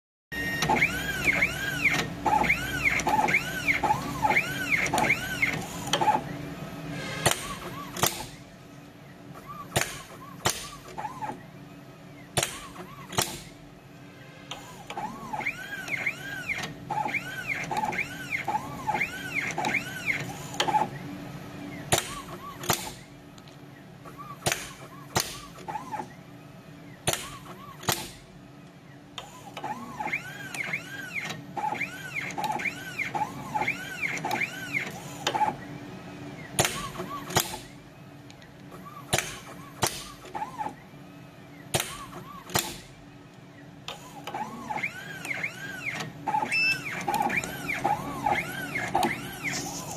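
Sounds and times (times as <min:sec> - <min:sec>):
machine motors whining: 0:00.4 - 0:49.9
sharp machine clicks: 0:07.2 - 0:08.4, 0:09.4 - 0:11.4, 0:12.3 - 0:13.6, 0:21.9 - 0:23.1, 0:36.6 - 0:37.8, 0:41.7 - 0:43.0.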